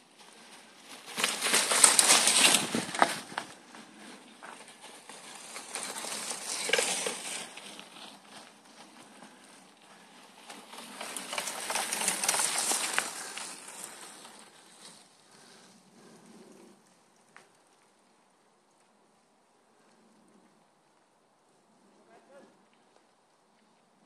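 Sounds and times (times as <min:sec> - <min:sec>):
bike tyres crunching leaves: 0:00.0 - 0:19.1.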